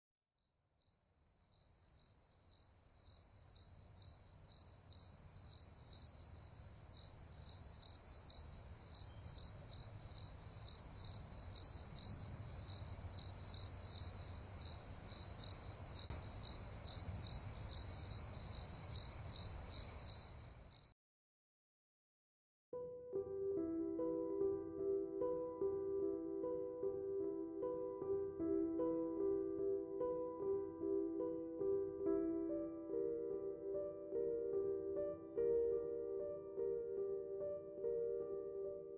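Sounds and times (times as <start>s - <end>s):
crickets chirping: 0.4s - 20.9s.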